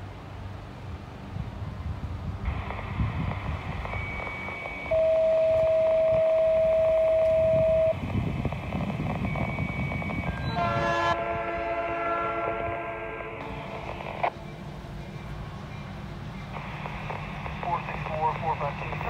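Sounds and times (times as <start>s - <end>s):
diesel locomotive rumbling: 0.0s - 19.0s
steady single-pitched beep: 3.9s - 8.0s, 9.2s - 10.6s
locomotive horn: 10.2s - 13.6s.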